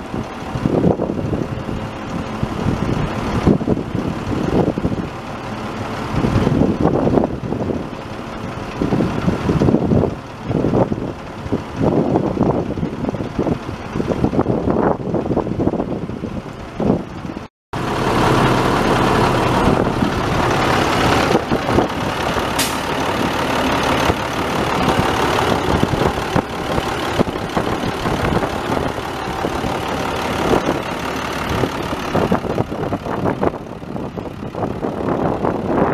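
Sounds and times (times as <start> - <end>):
diesel truck engine idling: 0.0 - 35.9
sharp click: 22.6 - 22.9.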